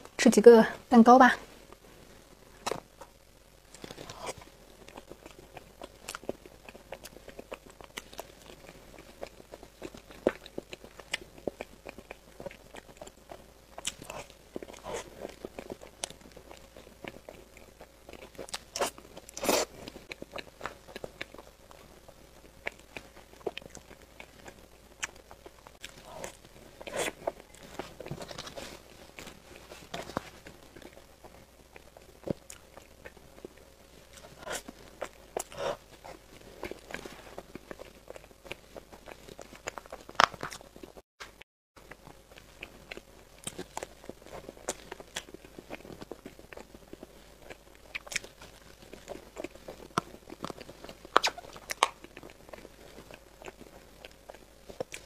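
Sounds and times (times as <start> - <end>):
moist chewing: 1.4 - 55.0
lip smacks: 49.4 - 52.3.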